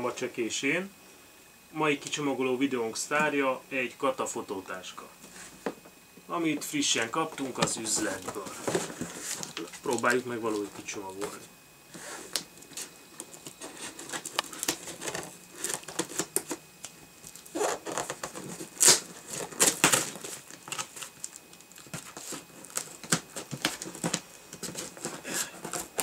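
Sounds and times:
scraping against cardboard: 0:07.3 - 0:09.9, 0:11.3 - 0:16.5, 0:21.8 - 0:26.0
scissors cutting packing tape: 0:17.3 - 0:26.0.

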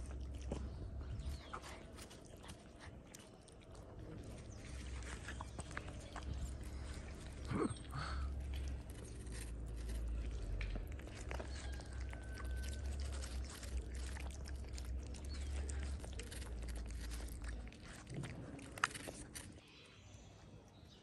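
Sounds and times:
kitten chewing wet food: 0:00.0 - 0:19.6
steady low rumble: 0:03.8 - 0:19.5.

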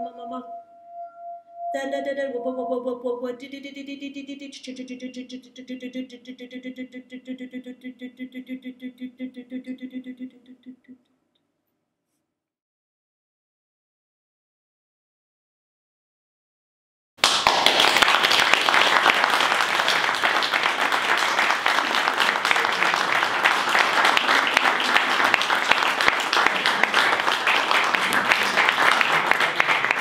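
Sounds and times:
audience applauding: 0:17.2 - 0:30.0.

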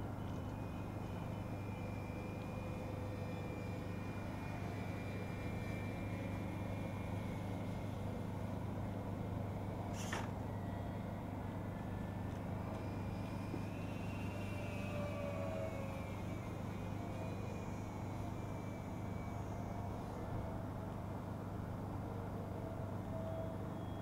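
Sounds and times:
model plane motors whining: 0:00.2 - 0:09.2, 0:12.4 - 0:20.5.

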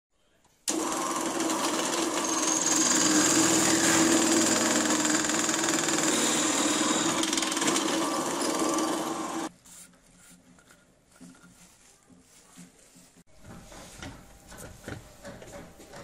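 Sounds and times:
drill press motor hum: 0:00.7 - 0:09.5
bit cutting into wood: 0:02.0 - 0:09.5.

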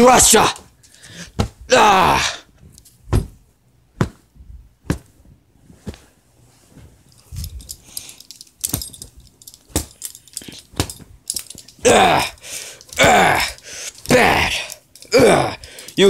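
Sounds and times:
rustling bedding: 0:02.6 - 0:11.9.

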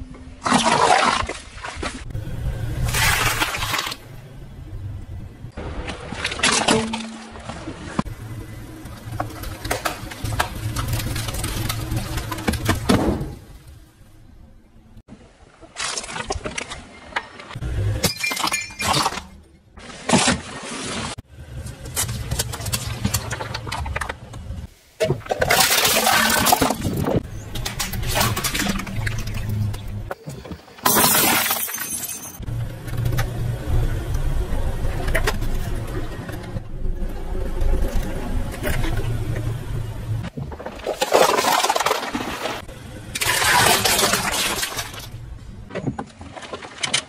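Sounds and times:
low rumble of car: 0:02.0 - 0:06.2, 0:07.3 - 0:15.0, 0:27.1 - 0:30.2, 0:32.4 - 0:40.8
scattered crackles and clicks: 0:08.8 - 0:12.9
plastic containers crushing: 0:09.1 - 0:13.5, 0:25.3 - 0:31.8, 0:40.3 - 0:45.2.

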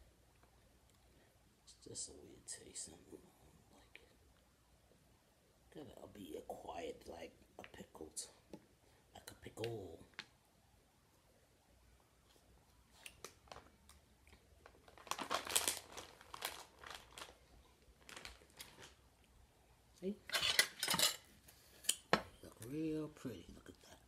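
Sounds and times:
plastic bag crinkling: 0:13.2 - 0:13.8, 0:14.4 - 0:19.0.

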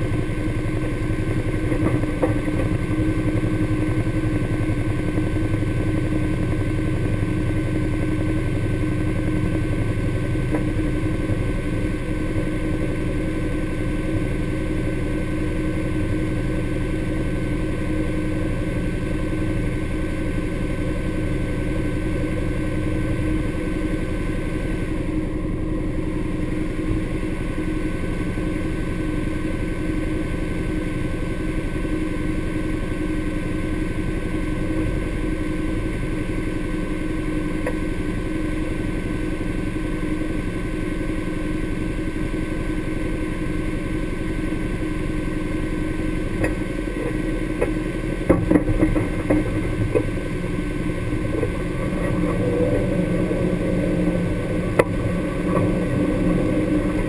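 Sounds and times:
vehicle engine idling: 0:00.0 - 0:57.0.

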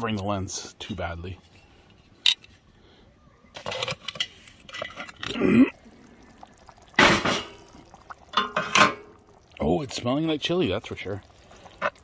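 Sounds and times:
metal lid scraping: 0:03.6 - 0:05.4, 0:08.4 - 0:09.1.

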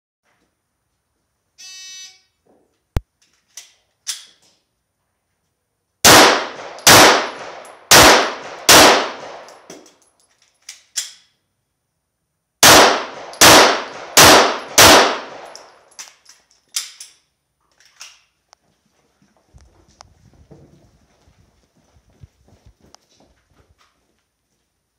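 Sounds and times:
short beep: 0:01.6 - 0:02.4
pistol shots echoing: 0:06.0 - 0:09.7, 0:12.6 - 0:15.9.

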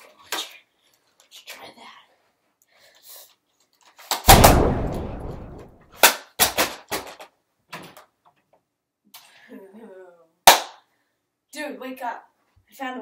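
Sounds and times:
blast with rumbling tail: 0:04.3 - 0:05.9.

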